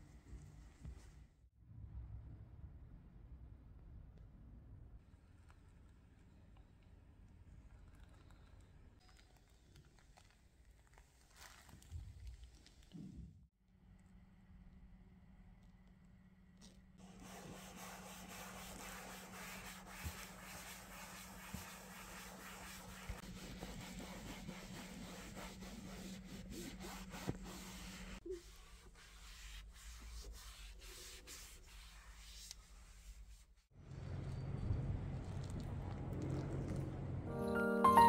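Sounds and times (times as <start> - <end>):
hand rubbing car surface: 17.0 - 33.4.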